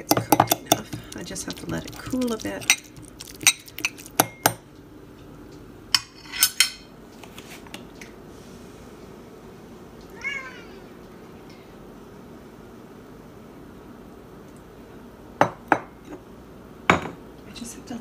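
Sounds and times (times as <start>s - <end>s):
cat meowing: 10.1s - 10.9s.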